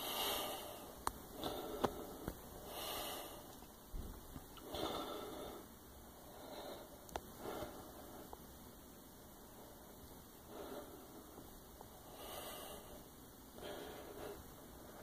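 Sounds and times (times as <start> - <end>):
person breathing: 0.0 - 3.5, 4.6 - 8.4, 10.5 - 15.0.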